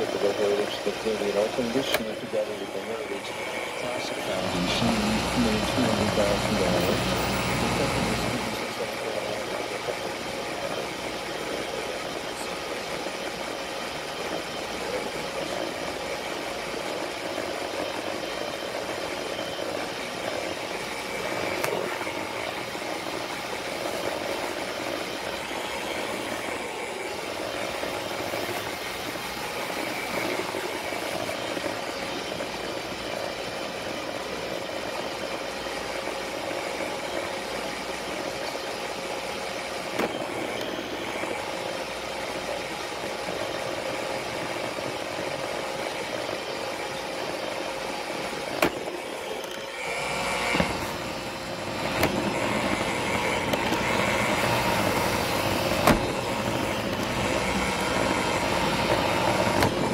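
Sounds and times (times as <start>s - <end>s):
robot vacuum motor and brush hum: 0.0s - 59.9s
robot vacuum bumping into things: 55.8s - 56.2s.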